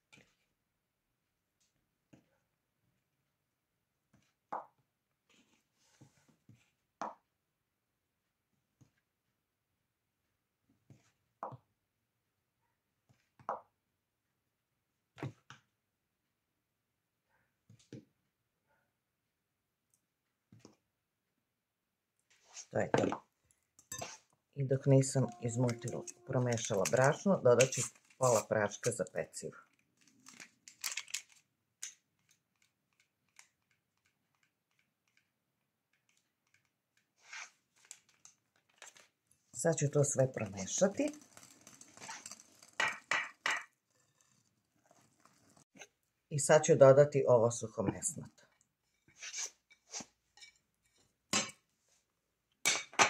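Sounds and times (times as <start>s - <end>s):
spoon scraping and knocking: 23.8s - 29.0s, 39.9s - 45.9s.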